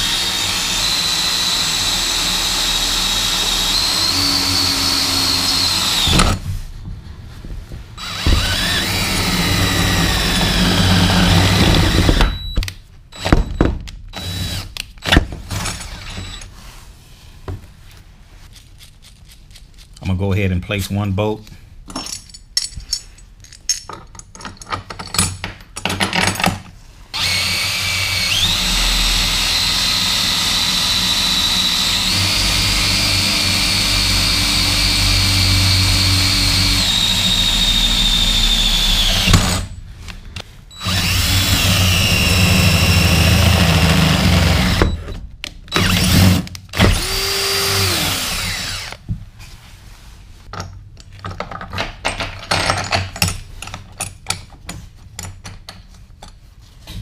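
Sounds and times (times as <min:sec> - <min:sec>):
cordless drill driving a bolt: 0:00.0 - 0:06.4, 0:08.0 - 0:12.5, 0:27.2 - 0:39.7, 0:40.8 - 0:45.1, 0:45.7 - 0:49.0
metal parts clinking: 0:21.9 - 0:26.6.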